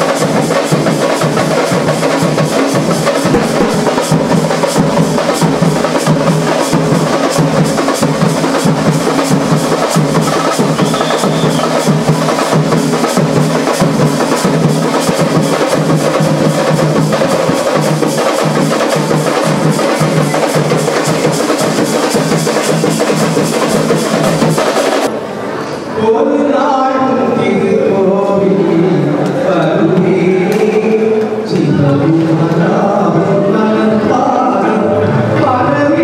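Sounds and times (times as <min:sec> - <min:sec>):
loud fast drumming: 0:00.0 - 0:25.1.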